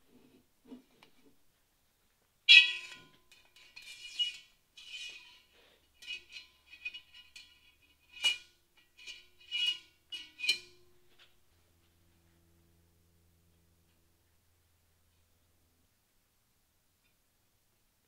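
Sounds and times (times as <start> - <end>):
wire handle clinking on iron pot: 6.0 - 11.0
pot ringing: 9.1 - 11.1.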